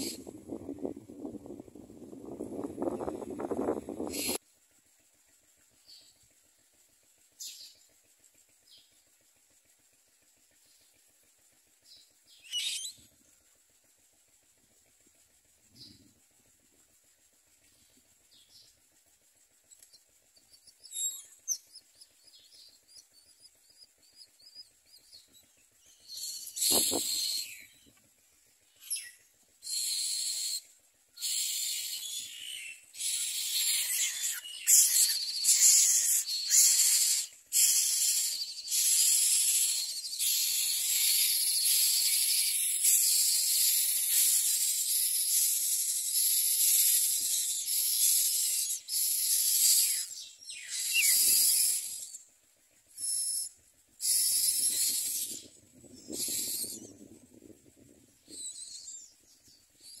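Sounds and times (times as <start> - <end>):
nestlings begging rasps: 0.0 - 0.6, 2.8 - 4.4, 12.3 - 13.2, 19.8 - 27.9, 28.7 - 52.3, 52.9 - 57.0, 58.2 - 60.0.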